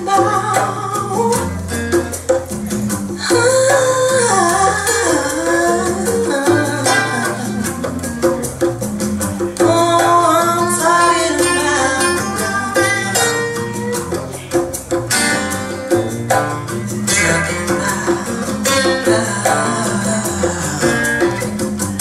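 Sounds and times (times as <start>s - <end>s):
woman singing: 0.0s - 1.7s, 3.2s - 8.7s, 9.4s - 14.5s, 17.0s - 22.0s
guitar music over loudspeakers: 0.0s - 22.0s.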